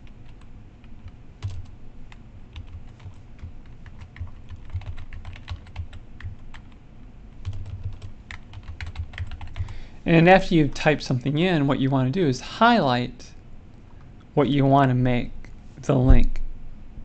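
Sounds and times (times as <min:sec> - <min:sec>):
computer keyboard typing: 0:00.0 - 0:06.8, 0:07.4 - 0:09.8.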